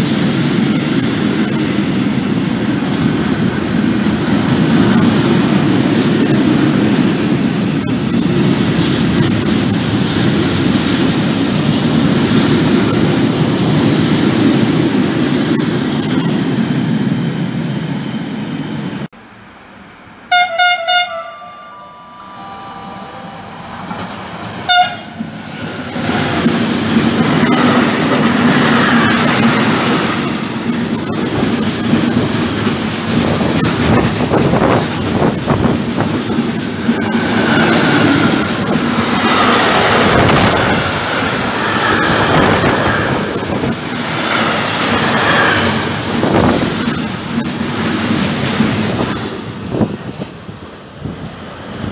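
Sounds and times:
locomotive horn blasts: 20.3 - 25.3.

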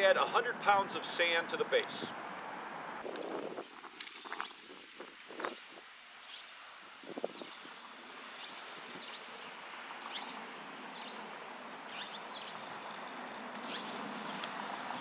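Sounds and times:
sand pouring into plastic: 3.0 - 9.8, 11.4 - 15.0.

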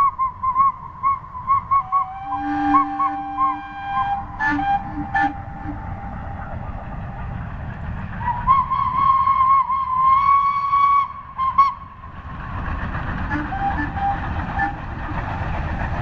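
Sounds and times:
steam locomotive whistle: 0.0 - 6.2, 8.2 - 12.0, 13.3 - 15.3
low steam whistle blasts: 0.0 - 6.5, 8.2 - 12.0, 13.3 - 15.3.

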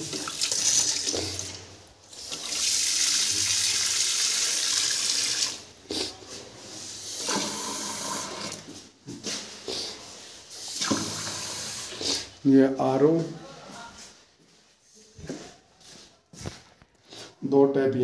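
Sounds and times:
tap water pouring into sink: 0.0 - 5.6, 10.7 - 12.0.

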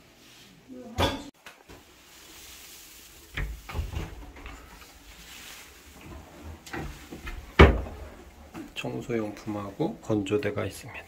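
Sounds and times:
cupboard knocks and thumps: 7.2 - 8.0.

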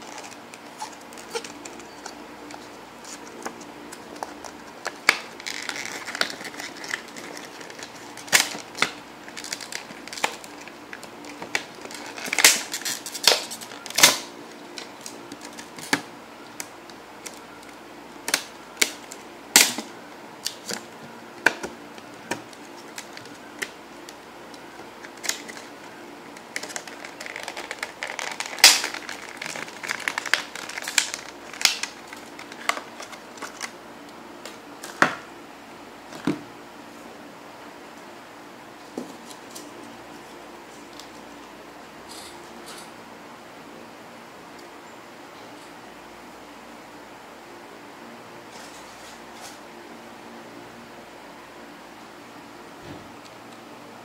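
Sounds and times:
plastic blister pack crackling: 0.0 - 35.0
plastic snapping: 26.4 - 33.8.

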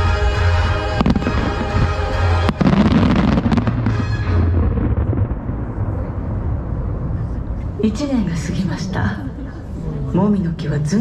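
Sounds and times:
show music: 0.0 - 4.9
fireworks crackles: 1.0 - 6.0
fireworks bursting: 1.0 - 6.1.

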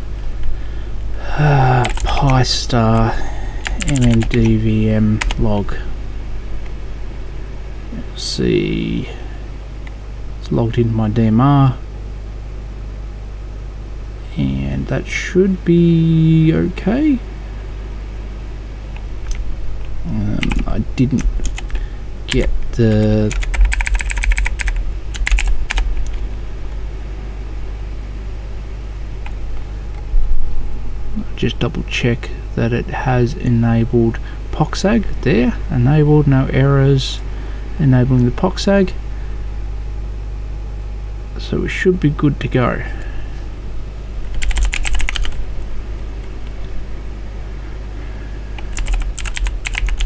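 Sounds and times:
low electrical hum: 0.0 - 50.0
keyboard keystrokes: 3.7 - 4.5, 23.3 - 26.2, 44.3 - 45.4, 48.6 - 50.0.

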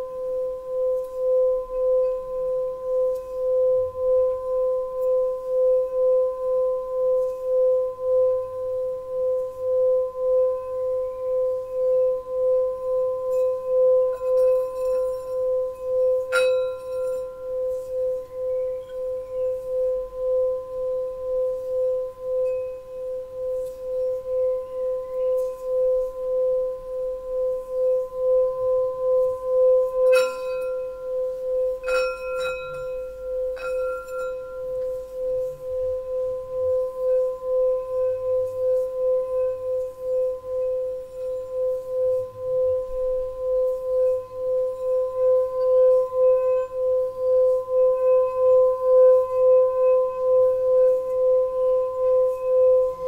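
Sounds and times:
singing bowl sustained tone: 0.0 - 53.0
mallet clinking on bowl rim: 10.4 - 20.5, 27.4 - 42.3.

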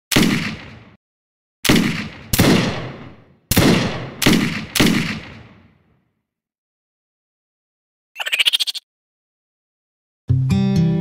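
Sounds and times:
echoing gunshots: 0.1 - 1.0, 1.6 - 5.9.

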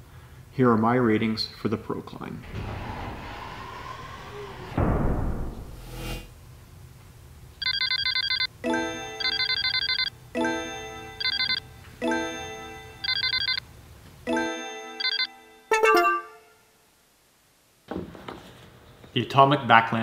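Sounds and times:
electronic ringing trill: 7.6 - 13.6, 15.0 - 16.6.

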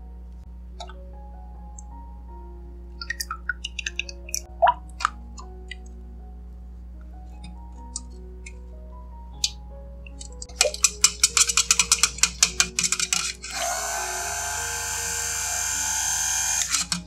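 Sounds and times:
stick blender running: 11.6 - 17.0.

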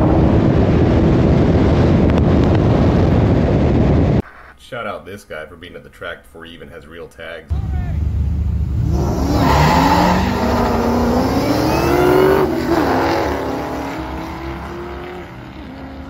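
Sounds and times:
race car engine accelerating: 8.0 - 16.0.

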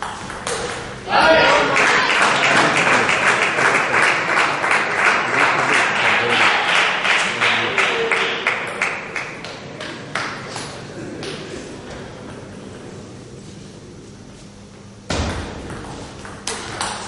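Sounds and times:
spectators clapping in unison: 1.3 - 11.4.

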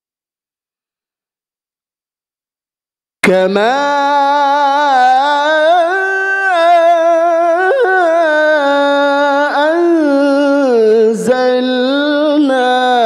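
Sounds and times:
man reciting melodically: 3.2 - 13.0.

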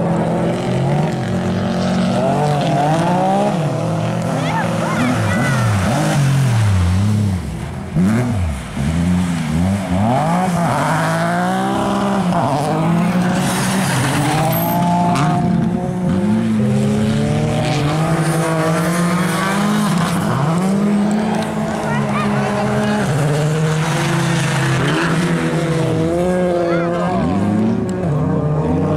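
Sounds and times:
rally car engines revving: 0.0 - 28.9.

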